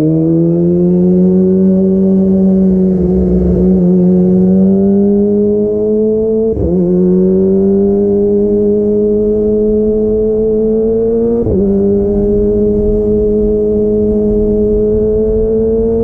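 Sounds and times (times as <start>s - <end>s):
motorcycle engine revving under load: 0.0s - 16.0s.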